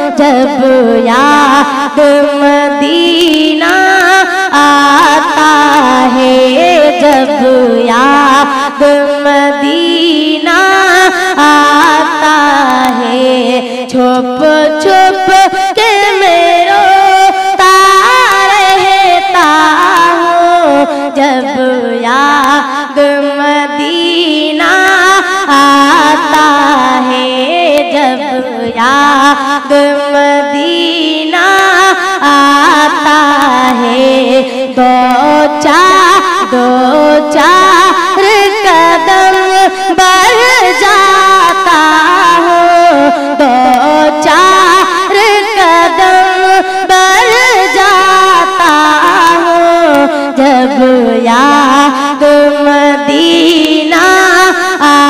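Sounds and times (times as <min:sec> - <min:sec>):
boy singing: 0:00.0 - 0:55.0.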